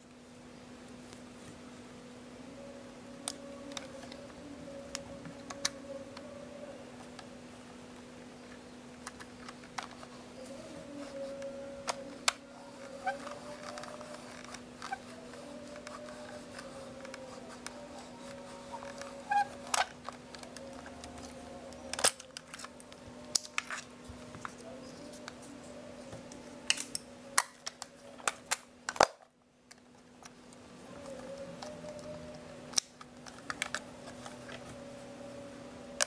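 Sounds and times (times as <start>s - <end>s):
faint steady hum: 0.0s - 36.0s.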